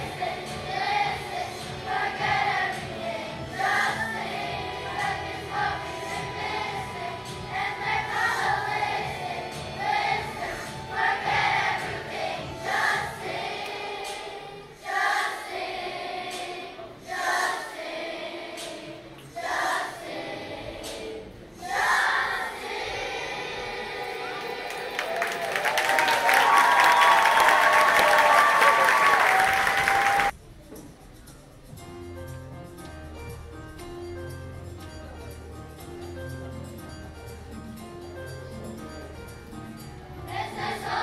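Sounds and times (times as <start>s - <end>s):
children's choir singing: 0.0s - 30.3s, 38.6s - 41.0s
backing music: 0.0s - 41.0s.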